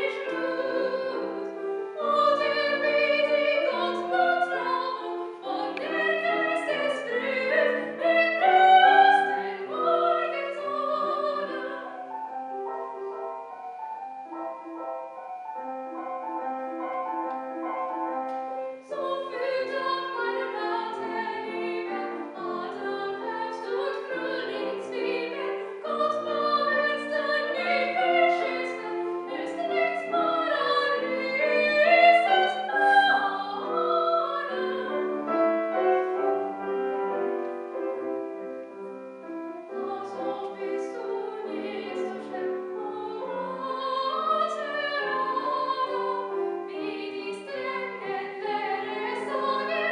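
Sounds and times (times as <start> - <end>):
woman singing soprano: 0.0 - 12.1, 18.8 - 35.9, 39.7 - 49.9
grand piano playing: 0.0 - 49.9.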